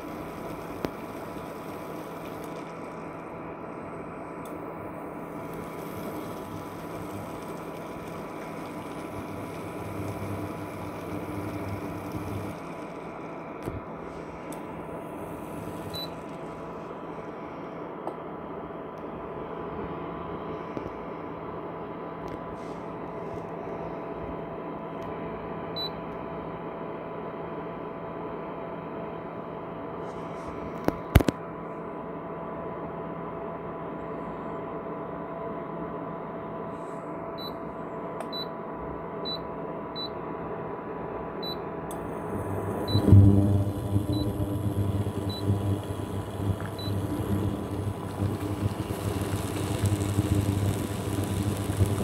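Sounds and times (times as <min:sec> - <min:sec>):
low buzz: 0:00.0 - 0:17.7, 0:42.0 - 0:52.0
cooktop fan hum and hiss: 0:00.0 - 0:52.0.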